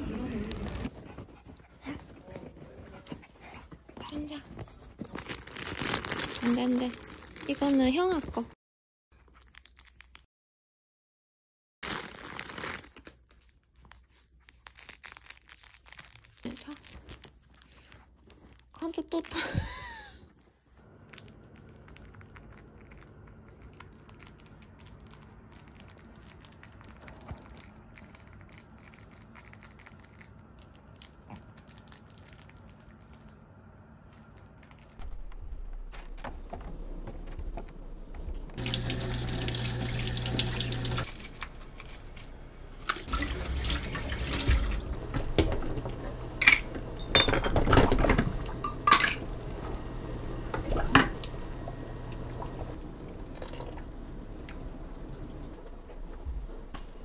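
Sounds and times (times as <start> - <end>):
low hum: 31.7 - 57.0
tap water running into sink: 38.6 - 41.1, 42.9 - 46.0, 47.6 - 54.6.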